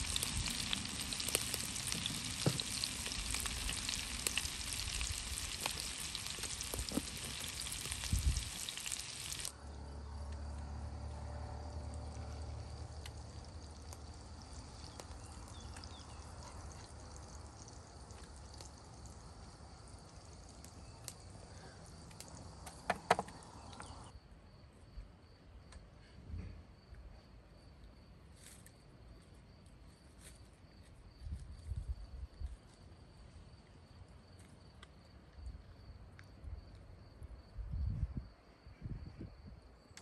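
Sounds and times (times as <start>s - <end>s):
meatballs sizzling in a pan: 0.0s - 9.6s.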